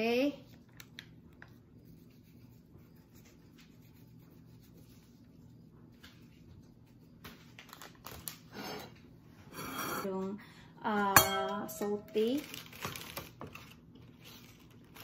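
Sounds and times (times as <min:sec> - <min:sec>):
low room hum: 0:00.0 - 0:15.0
paper packet rustling: 0:07.5 - 0:08.4, 0:12.2 - 0:15.0.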